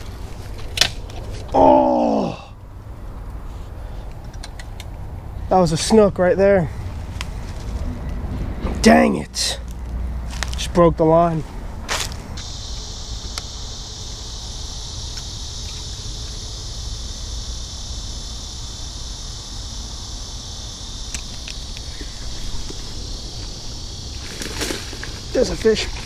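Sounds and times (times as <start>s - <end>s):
insect chorus buzzing: 0.0s - 26.0s.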